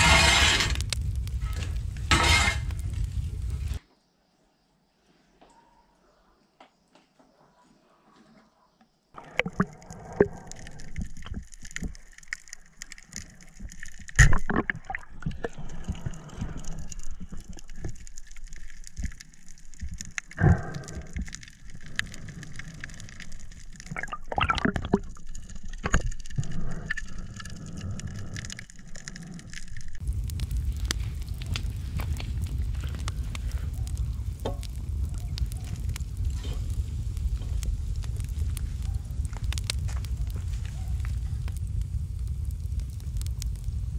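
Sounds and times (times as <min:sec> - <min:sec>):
water gurgling underwater: 0:09.2 - 0:40.4.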